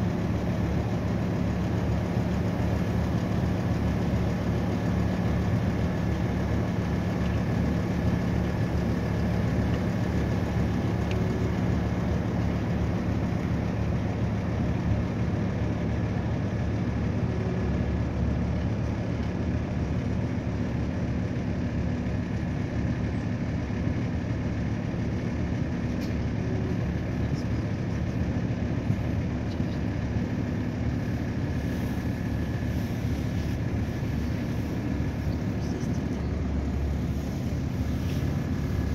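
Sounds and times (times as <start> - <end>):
boat engine humming: 0.0 - 38.9
thin steady whine: 26.4 - 38.9.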